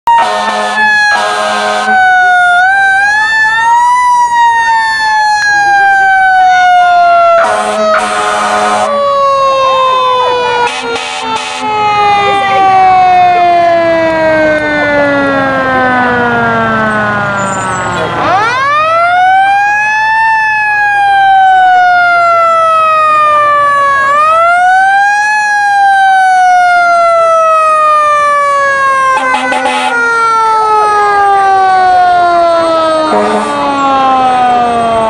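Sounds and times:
air horn blast: 0:00.1 - 0:02.0, 0:07.4 - 0:08.9, 0:10.2 - 0:13.7, 0:29.1 - 0:30.0, 0:33.1 - 0:33.6
mechanical siren wailing: 0:00.1 - 0:35.0.

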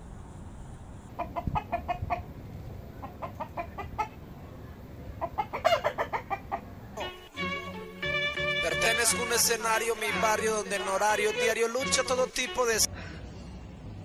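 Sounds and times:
rooster clucking: 0:01.1 - 0:07.3.

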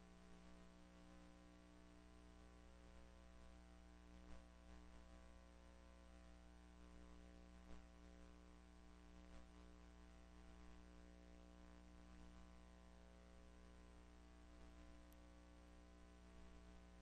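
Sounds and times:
faint electrical hum: 0:00.0 - 0:17.0
soft ticks: 0:15.1 - 0:15.3.

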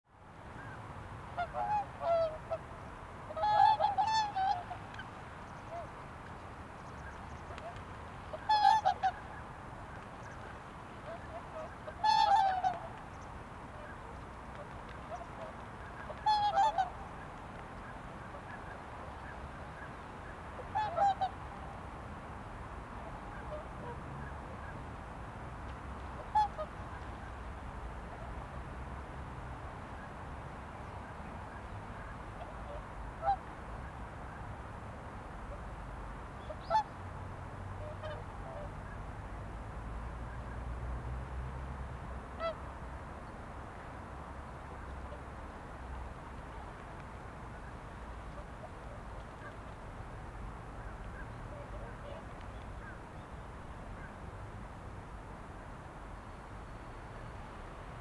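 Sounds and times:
low background hiss: 0:00.1 - 0:58.0
waterfowl honking: 0:01.4 - 0:02.6, 0:03.3 - 0:05.9, 0:06.9 - 0:09.5, 0:10.2 - 0:13.0, 0:15.0 - 0:17.1, 0:20.6 - 0:21.4, 0:26.2 - 0:27.2, 0:36.4 - 0:36.9, 0:37.8 - 0:38.7.

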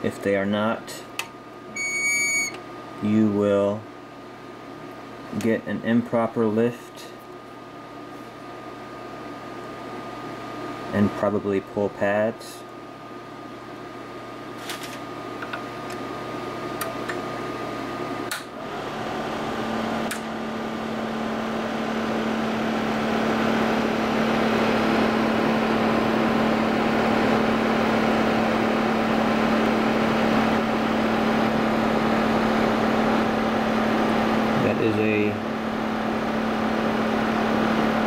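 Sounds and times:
fan motor hum: 0:00.0 - 0:38.0
fan air rushing: 0:02.7 - 0:38.0
fan switch clicks: 0:18.2 - 0:18.6, 0:20.0 - 0:20.3.

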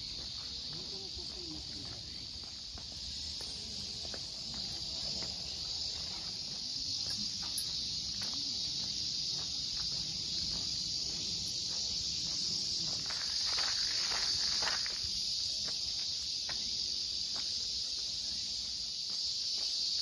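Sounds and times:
footsteps on path: 0:00.0 - 0:20.0
insects chorus: 0:00.0 - 0:20.0.

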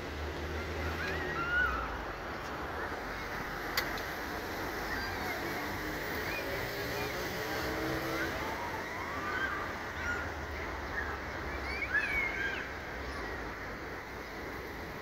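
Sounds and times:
humming engine: 0:00.0 - 0:11.9
rumble of passing vehicles: 0:00.0 - 0:15.0
birds chirping: 0:04.8 - 0:14.8.

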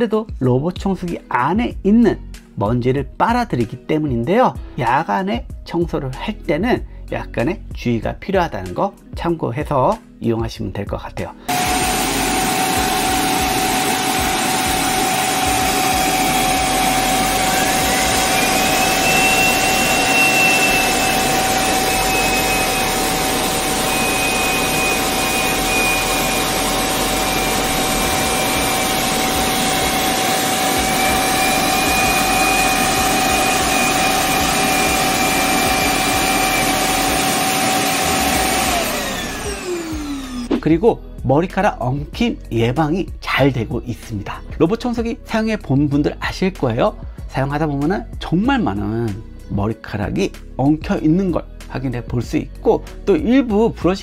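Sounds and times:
dock suction motor whining: 0:11.5 - 0:40.6
higher rising whine: 0:11.5 - 0:40.6.

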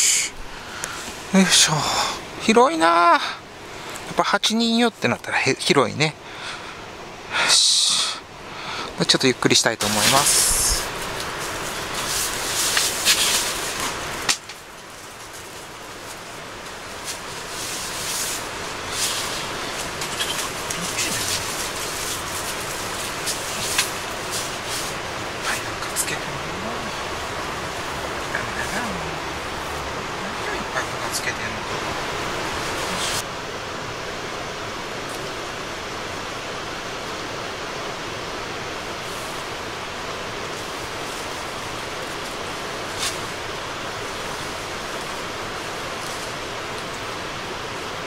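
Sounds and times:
steady hiss: 0:00.0 - 0:48.0
nylon fabric rustling: 0:09.9 - 0:25.1.

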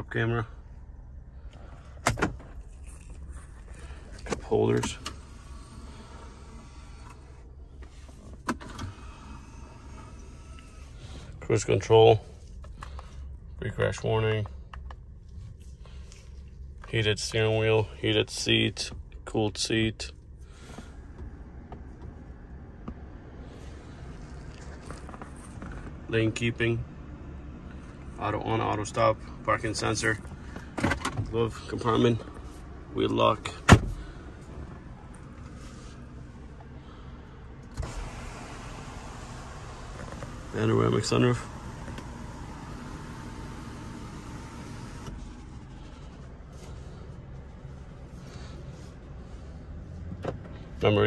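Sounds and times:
car engine idling: 0:00.0 - 0:51.0
low cabin hum: 0:00.0 - 0:51.0
sunroof motor whine: 0:05.0 - 0:11.3, 0:34.3 - 0:48.5.

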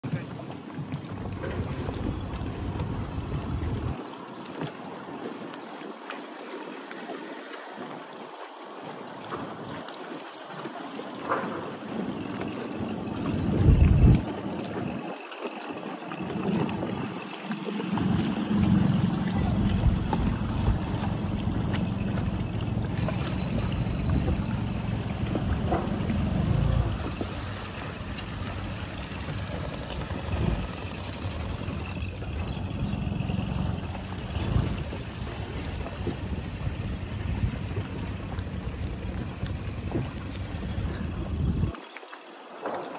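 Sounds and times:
wind buffeting microphone: 0:00.0 - 0:06.0, 0:09.0 - 0:41.8
lapping water: 0:00.0 - 0:42.9.

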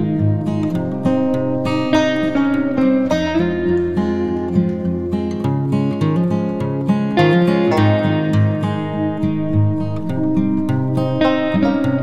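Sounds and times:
bass line: 0:00.0 - 0:05.1, 0:07.8 - 0:12.0
acoustic guitar plucking and strumming: 0:00.0 - 0:12.0.

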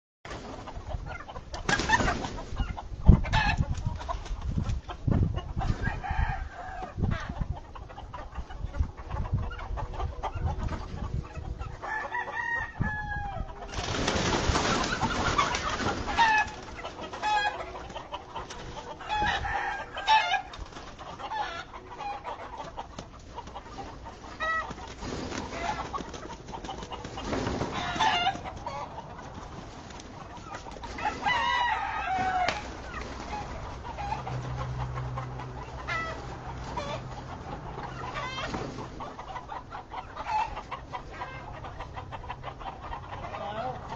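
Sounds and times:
chickens clucking: 0:00.3 - 0:43.9
rooster crowing: 0:05.8 - 0:07.0, 0:11.8 - 0:13.5, 0:19.1 - 0:20.5, 0:31.0 - 0:32.6
loud rustling noise: 0:13.7 - 0:16.7, 0:24.3 - 0:28.1.

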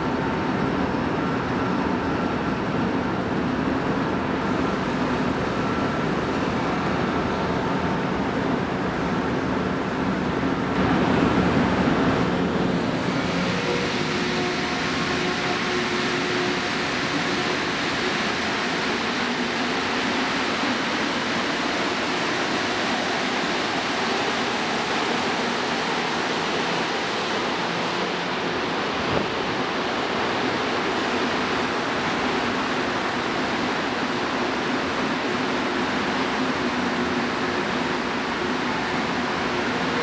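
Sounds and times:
train rushing past: 0:10.8 - 0:40.0.

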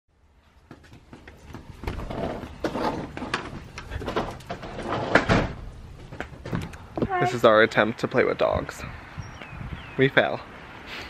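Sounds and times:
sliding door rattling and scraping: 0:01.6 - 0:06.6.

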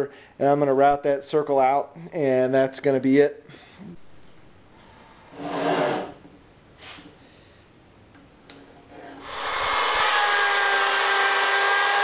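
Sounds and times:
electric router whining: 0:09.2 - 0:12.0.

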